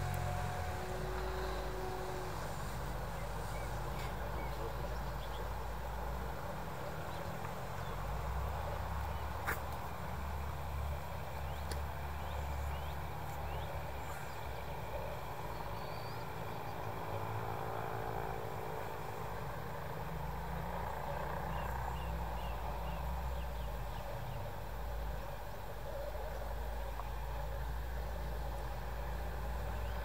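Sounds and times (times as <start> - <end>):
distant model airplane motor drone: 0.0 - 4.9, 12.2 - 24.0.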